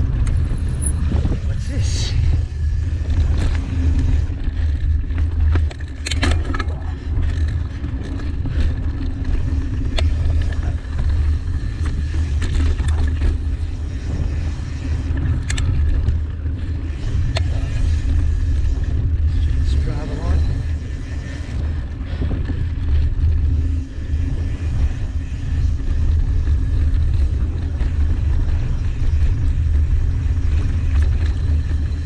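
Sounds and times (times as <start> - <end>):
bike clicks and rattles: 0.0 - 32.0
bike tyres rumbling on dirt: 0.0 - 32.0.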